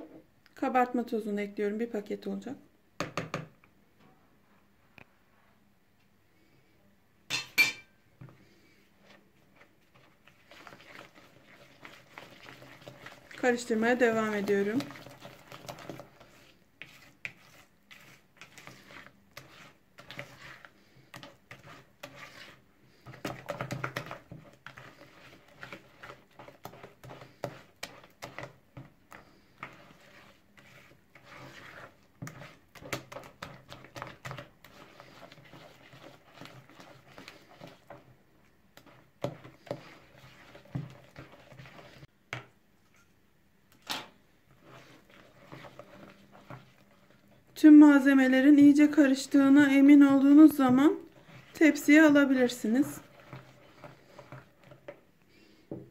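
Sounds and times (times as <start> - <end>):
whisk tapping plastic bowl: 3.0 - 3.6, 10.0 - 38.0
batter squelching: 8.2 - 42.2, 44.1 - 55.9.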